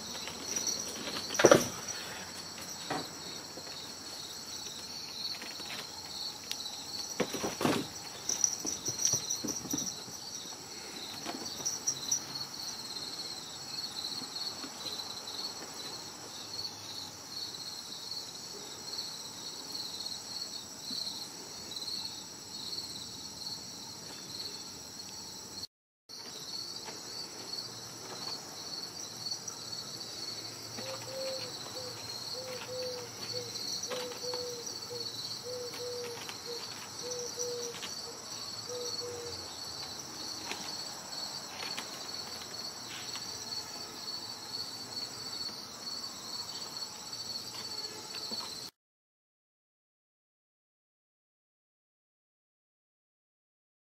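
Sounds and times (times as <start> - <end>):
crickets chirping: 0.0 - 48.7.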